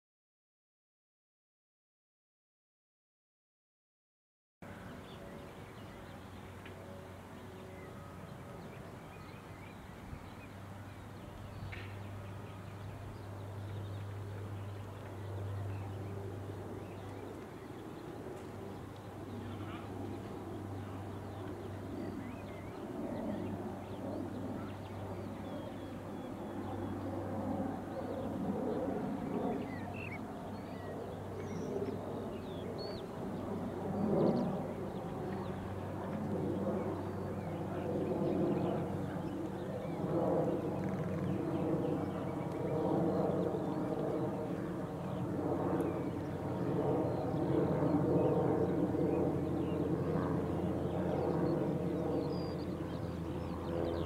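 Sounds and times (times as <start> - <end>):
small birds chirping: 4.7 - 54.0.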